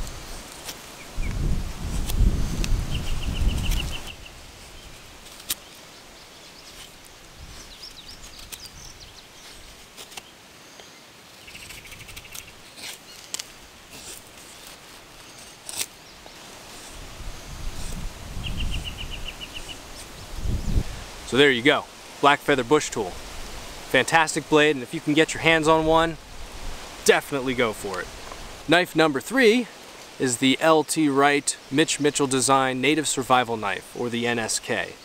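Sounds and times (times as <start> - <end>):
small birds chirping: 2.1 - 14.1, 15.2 - 21.4
knife scraping wooden stick: 12.0 - 16.0.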